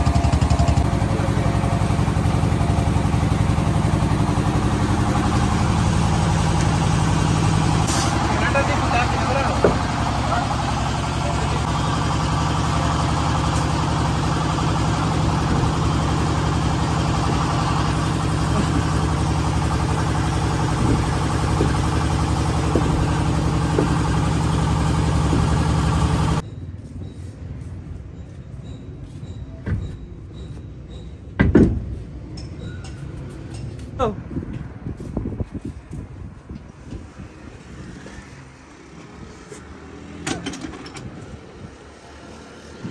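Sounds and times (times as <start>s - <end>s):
engine humming: 0.0s - 28.4s.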